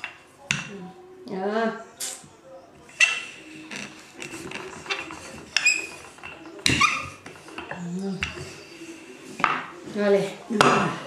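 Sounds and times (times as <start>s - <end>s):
rolling pin rolling dough: 2.7s - 11.0s.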